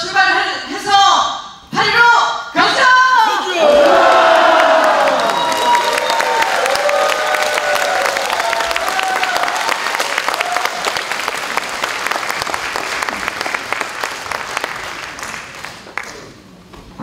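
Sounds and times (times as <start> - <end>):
audience applauding: 3.6 - 16.4.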